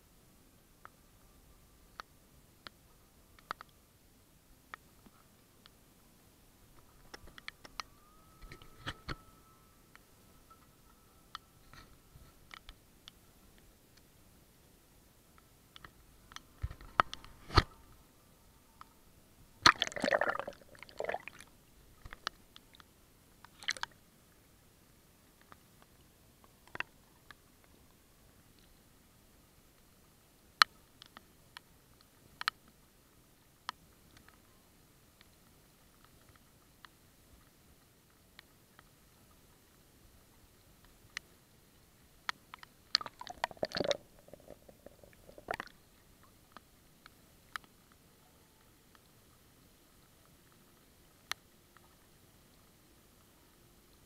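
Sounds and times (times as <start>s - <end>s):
water splashing and gurgling: 19.6s - 21.5s, 43.0s - 45.8s
water splashes and drips: 19.6s - 22.8s, 23.5s - 24.0s.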